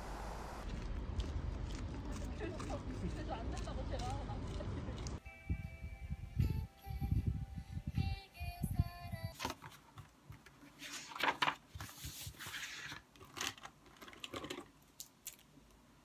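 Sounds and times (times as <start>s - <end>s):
paper rustling and rubbing: 9.4s - 14.6s.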